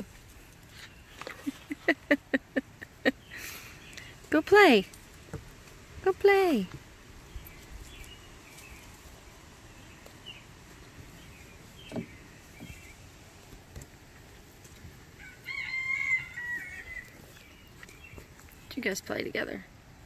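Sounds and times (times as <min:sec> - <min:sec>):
rooster crowing: 0:15.2 - 0:17.2.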